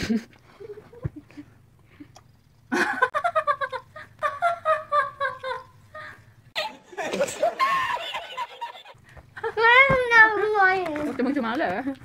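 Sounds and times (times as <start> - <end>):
woman laughing high-pitched: 2.8 - 9.6.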